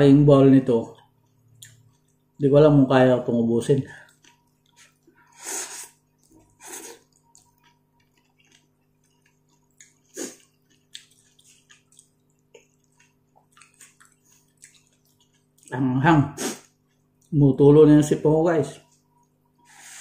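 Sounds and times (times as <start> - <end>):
soft chewing: 0.9 - 2.4, 3.8 - 17.4.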